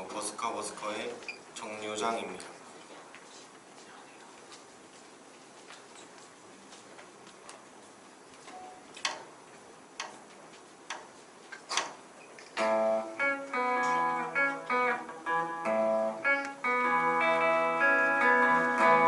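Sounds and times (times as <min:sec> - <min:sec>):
electric guitar picked run: 0:12.6 - 0:19.0.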